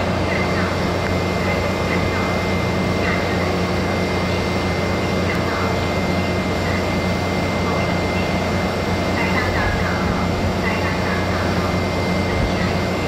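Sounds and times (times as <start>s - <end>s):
diesel train engines idling: 0.0s - 13.0s.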